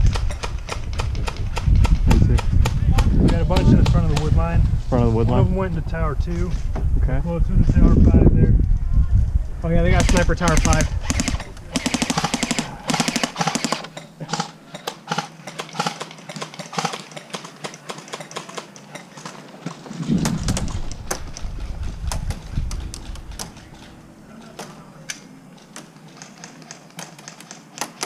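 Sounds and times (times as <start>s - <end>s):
airsoft guns firing: 9.9s - 18.7s.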